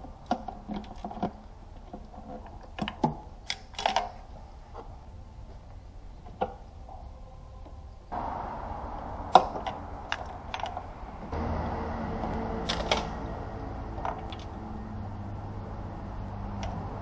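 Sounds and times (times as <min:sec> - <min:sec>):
workshop hum: 0:06.7 - 0:17.0.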